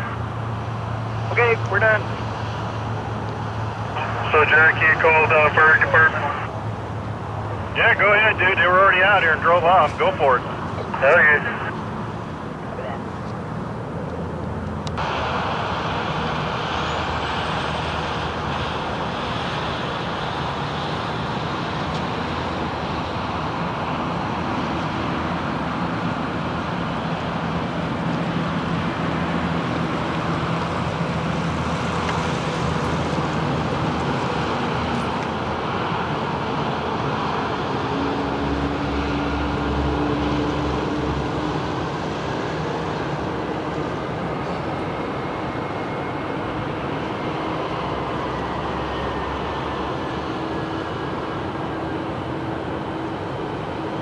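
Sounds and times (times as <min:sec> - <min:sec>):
jet engine roaring with whine: 0:00.0 - 0:54.0.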